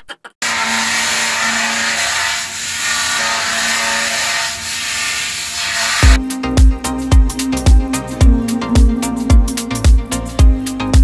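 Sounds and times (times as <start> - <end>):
deck descaling machine running: 0.4 - 6.2.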